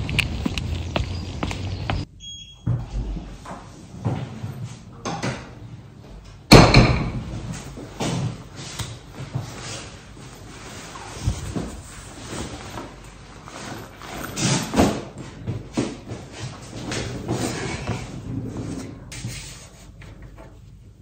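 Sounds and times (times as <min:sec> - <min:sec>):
short electronic beep: 0:02.2 - 0:02.7
door shutting with a bang: 0:06.5 - 0:07.5.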